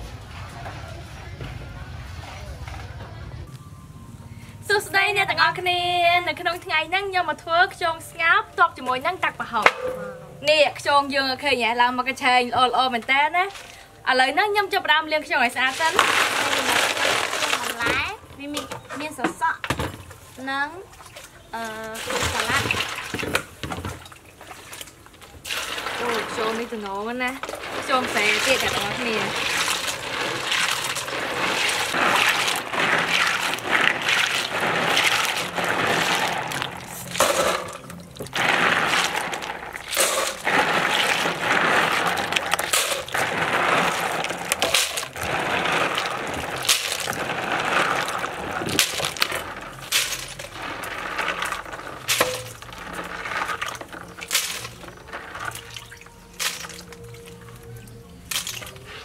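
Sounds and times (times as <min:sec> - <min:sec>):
water sloshing: 0:07.5 - 0:59.0.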